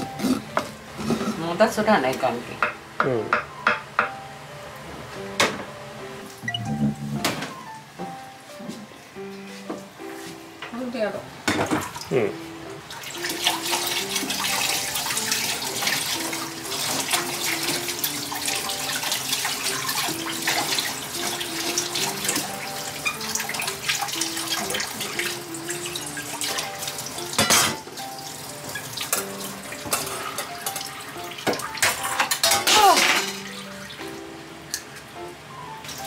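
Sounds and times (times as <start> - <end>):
tap water running into sink: 12.9 - 34.1.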